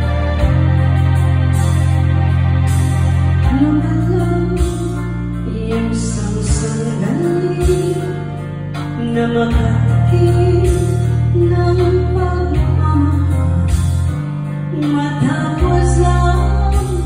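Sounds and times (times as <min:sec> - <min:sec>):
slow ballad backing track: 0:00.0 - 0:17.0.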